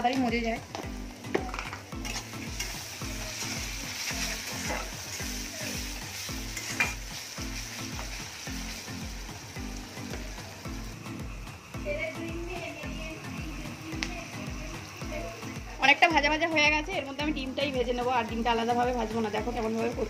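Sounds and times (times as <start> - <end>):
vegetables sizzling in oil: 0.0 - 20.0
metal spatula scraping pan: 2.0 - 5.8, 6.4 - 7.1.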